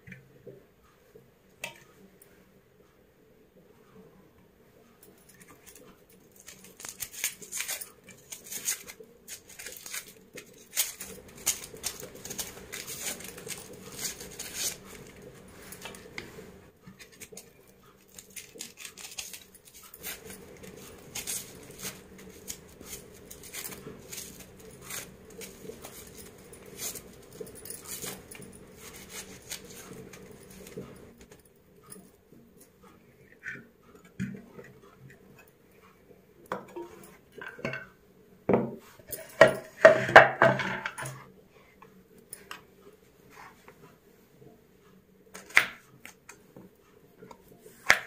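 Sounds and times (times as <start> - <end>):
onion skins crackling and rustling: 5.3 - 31.4.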